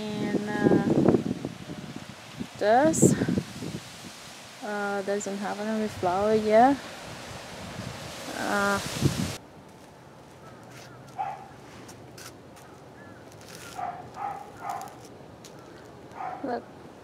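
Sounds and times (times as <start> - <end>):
dog barking: 11.2 - 11.6, 13.8 - 15.0, 16.2 - 16.5.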